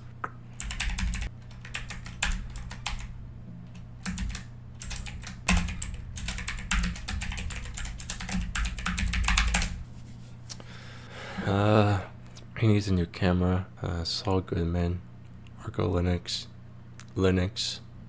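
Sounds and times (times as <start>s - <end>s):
keyboard typing: 0.5s - 3.1s, 3.7s - 9.8s.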